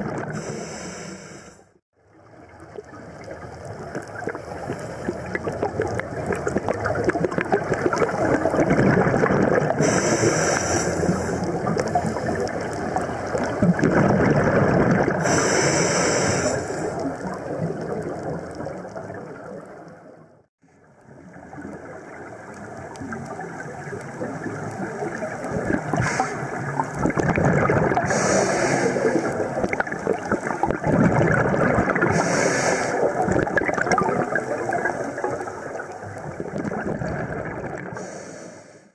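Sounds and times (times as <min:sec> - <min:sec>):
bubbling exhalations underwater: 0:00.0 - 0:00.5, 0:03.7 - 0:10.2, 0:11.2 - 0:15.6, 0:24.2 - 0:38.0
regulator hissing inhalations: 0:00.4 - 0:01.7, 0:09.8 - 0:11.5, 0:15.2 - 0:17.0, 0:26.0 - 0:26.6, 0:28.1 - 0:29.4, 0:32.1 - 0:33.2, 0:38.0 - 0:38.9.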